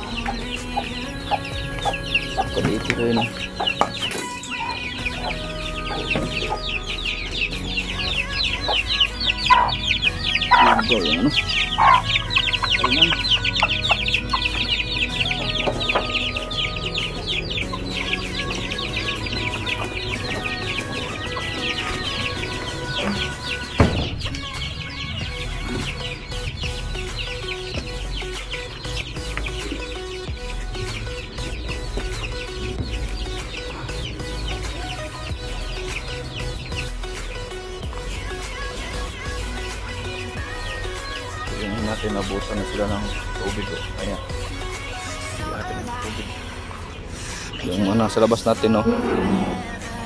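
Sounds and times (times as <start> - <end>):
chicks peeping: 0.0 - 50.0
sharp knock: 23.8 - 24.4.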